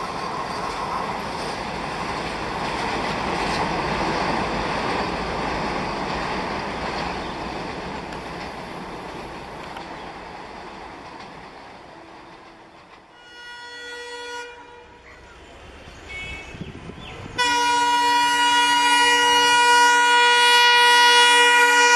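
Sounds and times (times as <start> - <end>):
freight train wagons rattling: 0.0 - 14.0
distant train horn: 11.9 - 21.9.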